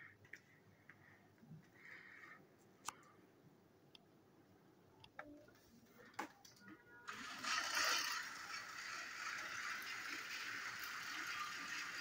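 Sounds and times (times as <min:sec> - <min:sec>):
toy train motors whirring: 0:07.1 - 0:12.0
wheels rattling on plastic track: 0:07.1 - 0:12.0.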